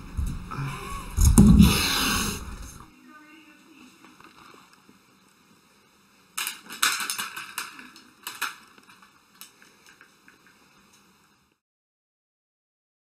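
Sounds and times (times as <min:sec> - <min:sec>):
toy helicopter clattering: 0:06.4 - 0:11.0.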